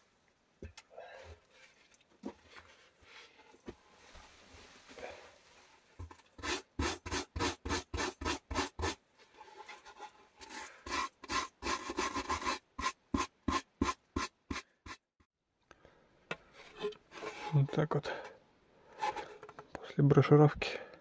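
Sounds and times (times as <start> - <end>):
stiff brush scrubbing wood: 6.4 - 9.0, 9.6 - 15.0.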